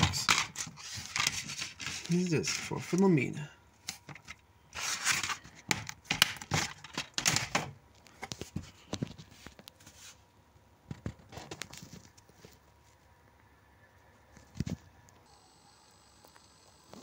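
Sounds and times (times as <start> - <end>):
plastic case rustling and scraping: 0.0 - 3.0, 3.8 - 10.2, 10.9 - 13.0.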